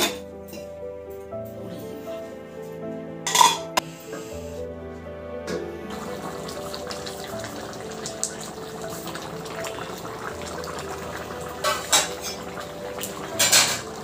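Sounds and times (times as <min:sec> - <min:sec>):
curry bubbling in a pot: 0:05.9 - 0:14.0.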